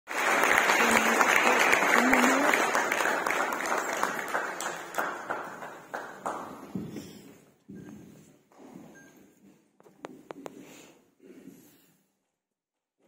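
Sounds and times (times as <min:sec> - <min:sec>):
audience applauding: 0:00.1 - 0:06.8.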